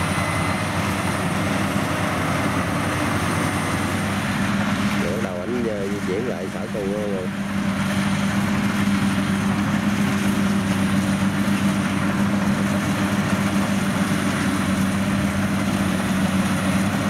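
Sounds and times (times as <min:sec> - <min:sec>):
combine harvester droning: 0:00.0 - 0:17.0.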